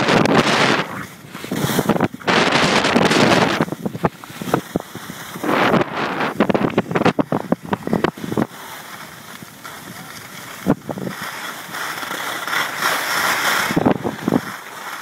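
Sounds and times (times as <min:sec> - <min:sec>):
wind on microphone: 0:00.0 - 0:11.2, 0:13.6 - 0:14.6
skis scraping on snow: 0:00.0 - 0:15.0.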